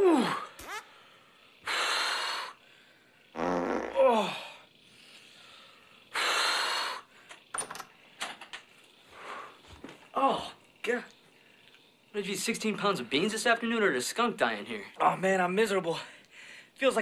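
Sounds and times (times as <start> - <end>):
man groaning: 0.0 - 0.6, 3.8 - 4.6, 10.2 - 10.6
hissing strained breaths: 0.0 - 8.2, 8.8 - 12.2.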